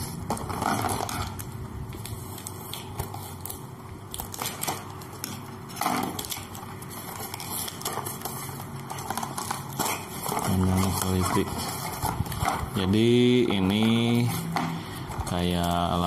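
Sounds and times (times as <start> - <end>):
cardboard box crackling and scraping: 5.8 - 15.5.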